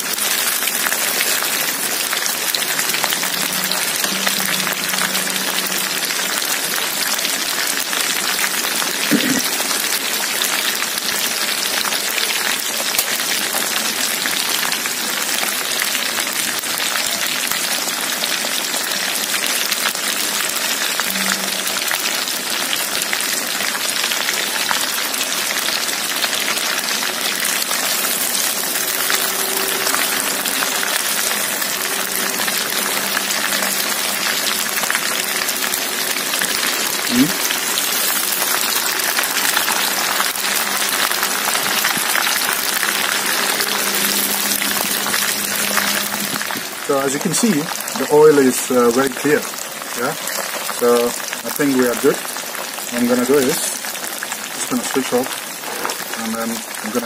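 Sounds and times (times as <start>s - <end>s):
prawns sizzling in hot oil: 0.0s - 57.0s.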